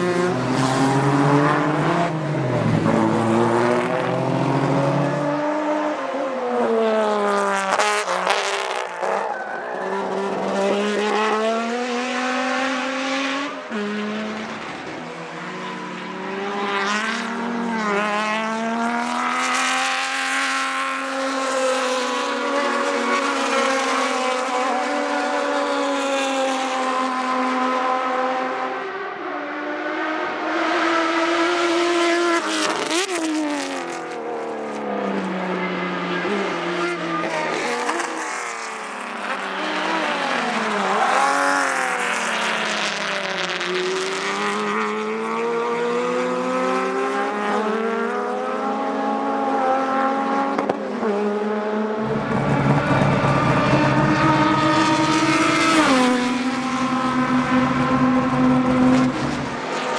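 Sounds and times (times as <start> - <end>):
race cars passing at speed: 0.0 - 59.9.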